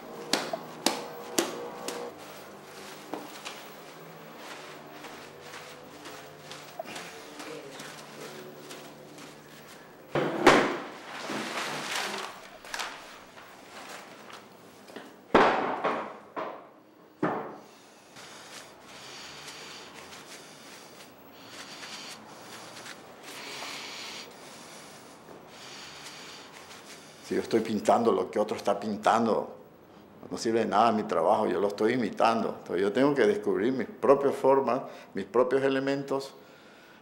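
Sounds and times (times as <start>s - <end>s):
rubbing strokes across canvas: 0.0s - 10.0s, 18.0s - 27.3s.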